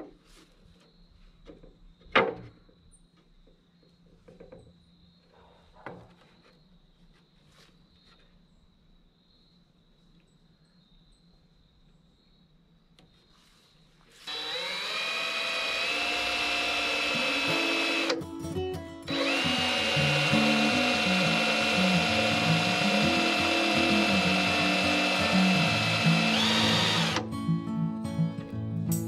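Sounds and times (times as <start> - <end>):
power drill motor whine: 14.2 - 18.2, 19.1 - 27.3.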